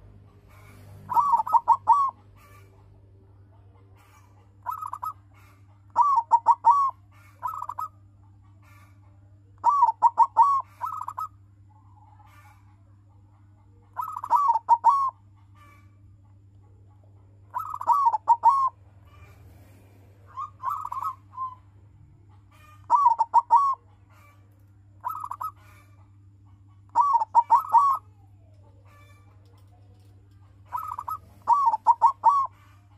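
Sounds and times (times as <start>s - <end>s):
dove cooing: 0.0s - 3.0s, 3.7s - 8.0s, 9.6s - 11.4s, 13.9s - 15.9s, 17.4s - 21.7s, 22.5s - 24.4s, 25.0s - 26.1s, 26.8s - 32.9s.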